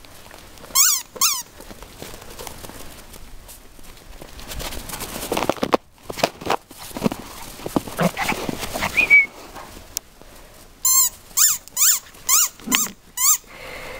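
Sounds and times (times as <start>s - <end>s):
footsteps crunching in snow: 0.0s - 12.3s
small dog yapping: 8.0s - 9.3s, 11.5s - 13.0s.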